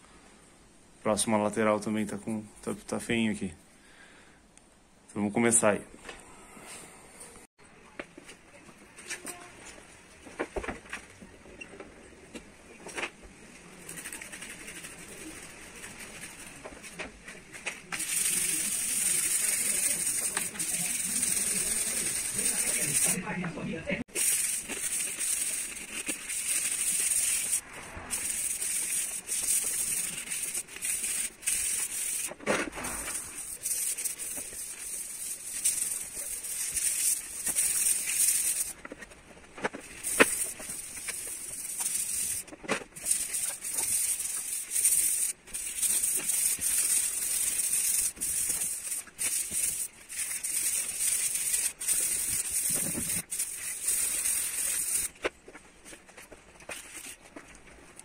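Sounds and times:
hand scrubbing painted car roof: 13.6 - 23.2, 24.0 - 38.8, 39.8 - 55.2.

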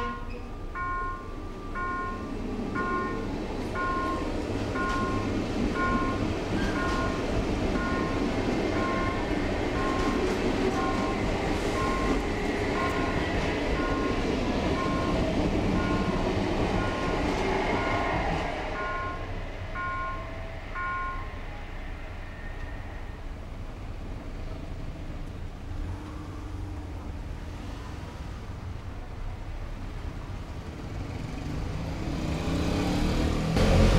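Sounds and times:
level-crossing warning bell: 0.0 - 23.2
electric train passing: 0.0 - 33.9
light street traffic: 0.0 - 33.9.

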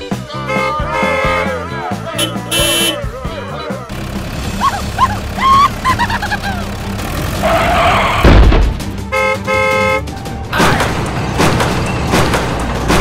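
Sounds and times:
car horn honking: 0.4 - 3.2, 9.0 - 10.1.

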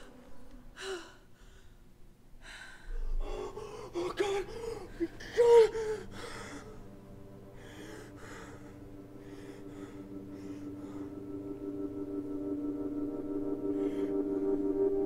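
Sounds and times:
woman gasping pained cries: 0.0 - 1.7, 2.5 - 6.9
heavy breathing: 0.0 - 11.9, 13.6 - 14.6.

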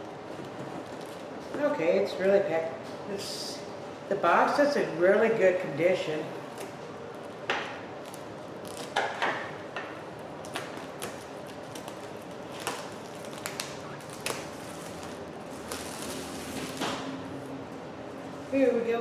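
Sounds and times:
plastic wrap crinkling: 0.4 - 1.4, 8.0 - 9.0, 10.4 - 17.5.

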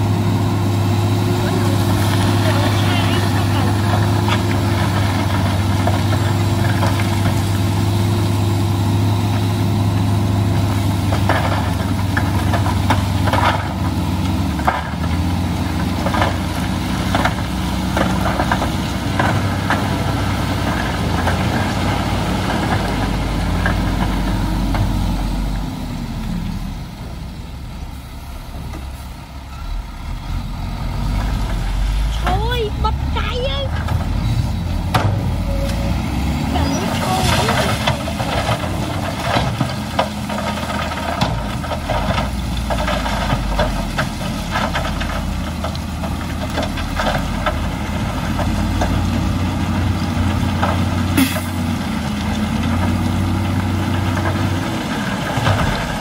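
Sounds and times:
diesel engine running: 0.0 - 56.0
rocks clattering: 34.8 - 56.0.

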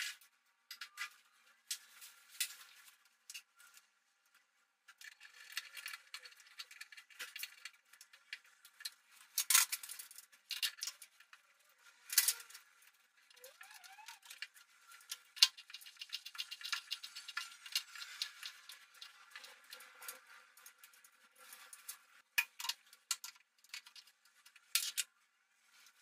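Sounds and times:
tools clicking and tapping: 21.7 - 25.1.

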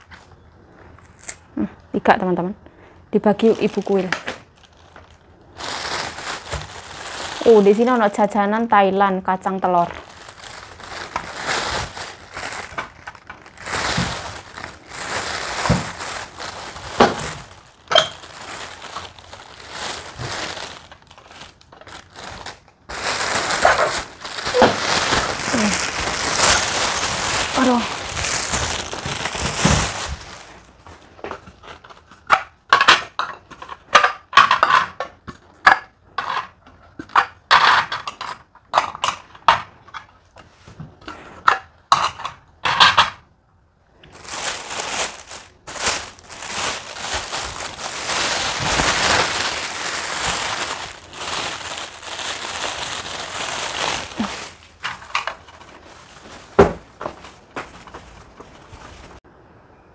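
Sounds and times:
plastic bags crinkling: 3.2 - 35.3, 43.9 - 59.2.

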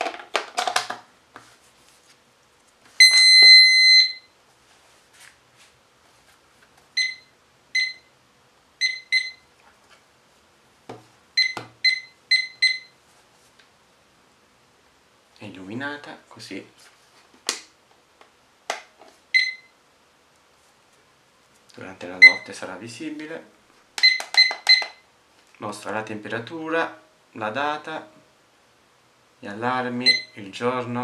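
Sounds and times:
alarm clock beeping: 3.0 - 4.3, 8.8 - 9.4, 11.4 - 12.9, 19.4 - 19.7, 30.1 - 30.3.

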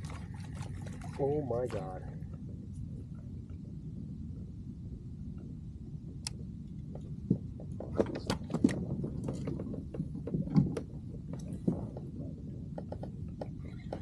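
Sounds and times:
low rumble: 0.0 - 14.0.

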